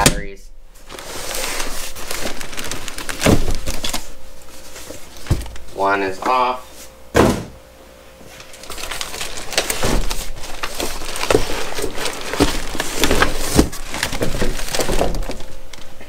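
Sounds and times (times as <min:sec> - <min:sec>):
plastic wrap crinkling: 0:00.7 - 0:05.7, 0:08.3 - 0:16.0
cardboard scraping and creaking: 0:00.8 - 0:05.3, 0:08.4 - 0:15.5.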